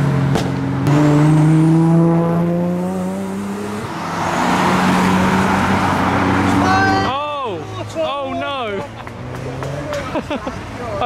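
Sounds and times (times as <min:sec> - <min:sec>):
car engine pulling hard: 0:00.0 - 0:11.0
car rushing past: 0:00.0 - 0:11.0
sharp crack: 0:00.3 - 0:00.6.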